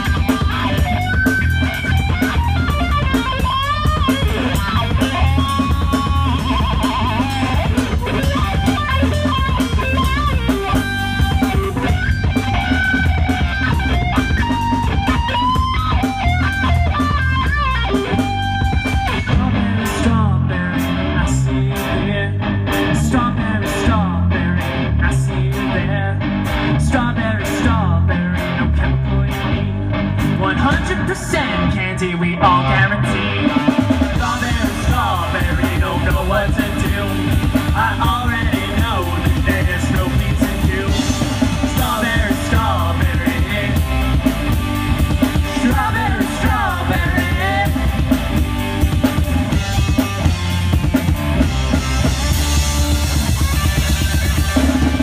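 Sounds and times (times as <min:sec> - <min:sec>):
live rock band playing: 0:00.0 - 0:55.0
melodic guitar lead: 0:00.0 - 0:55.0.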